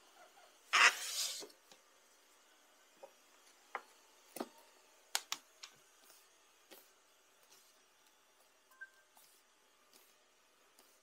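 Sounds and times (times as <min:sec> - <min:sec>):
hand brushing wooden floor: 0:00.8 - 0:01.5.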